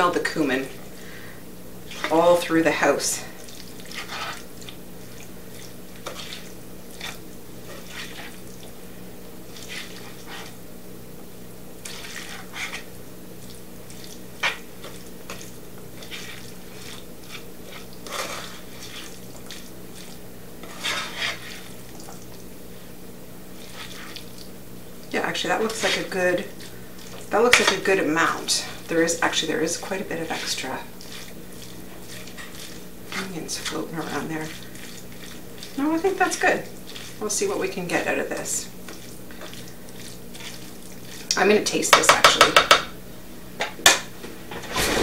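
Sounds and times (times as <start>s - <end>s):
steady low hum: 0.0s - 41.8s
spoon scraping a bowl: 3.8s - 4.5s, 6.0s - 8.4s, 9.6s - 10.6s, 11.8s - 12.9s, 16.0s - 21.8s, 25.6s - 27.8s, 30.3s - 35.8s.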